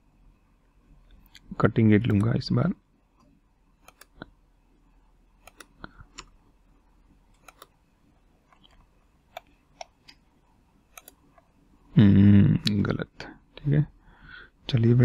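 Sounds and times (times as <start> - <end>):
computer mouse clicking: 3.2 - 4.3, 5.4 - 6.4, 7.3 - 7.8, 8.5 - 10.2, 10.9 - 11.5.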